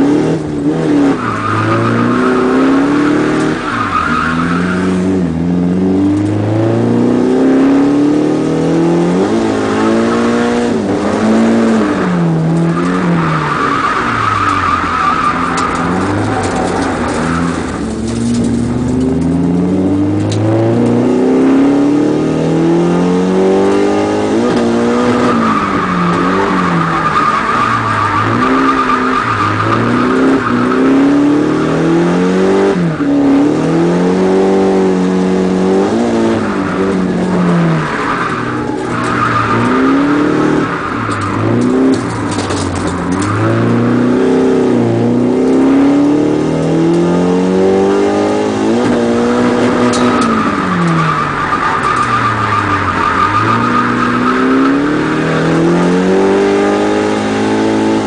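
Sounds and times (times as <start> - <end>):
car engine revving: 0.0 - 58.0
tyres squealing: 25.0 - 31.3, 48.9 - 55.5.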